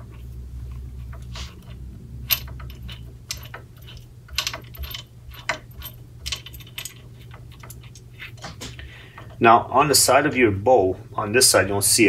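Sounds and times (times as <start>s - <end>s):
allen wrench clicking: 0.0s - 9.4s.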